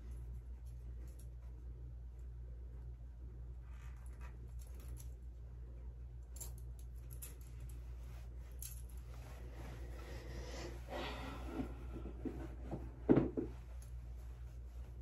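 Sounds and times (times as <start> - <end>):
steady low hum: 0.0 - 15.0
small clicks of chain necklace: 4.5 - 5.2, 6.2 - 7.8
fabric rustling: 7.4 - 15.0.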